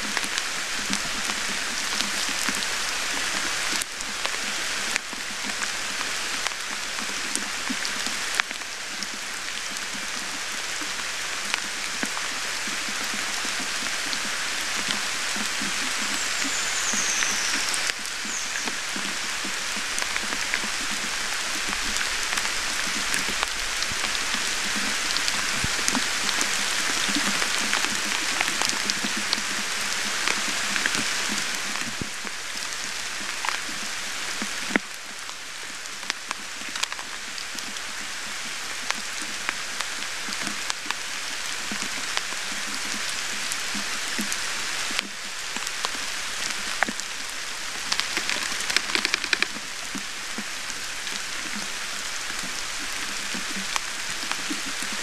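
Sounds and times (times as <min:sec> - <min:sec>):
steady rain falling: 0:00.0 - 0:55.0
sharp drips ticking: 0:47.7 - 0:50.5.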